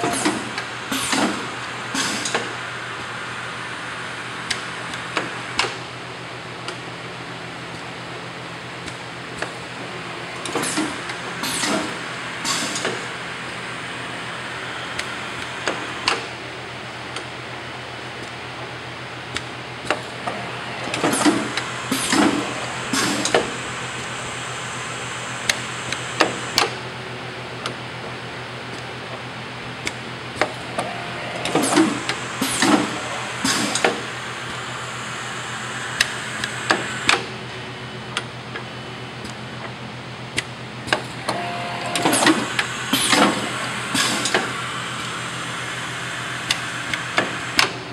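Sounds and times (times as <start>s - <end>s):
machine hum: 0.0s - 47.9s
mechanical clunks: 29.9s - 34.1s, 40.4s - 44.6s.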